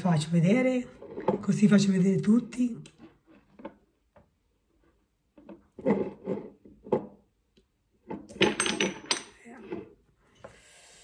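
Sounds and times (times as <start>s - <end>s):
bottles clicking and knocking: 5.3s - 9.9s.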